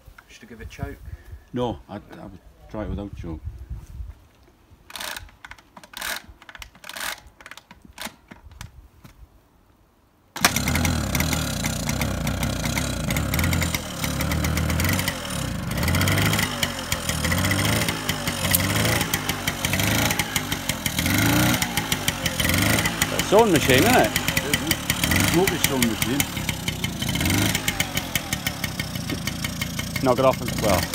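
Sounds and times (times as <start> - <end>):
moped engine running: 10.4 - 30.9
pedal cranking clicks and knocks: 10.4 - 30.9.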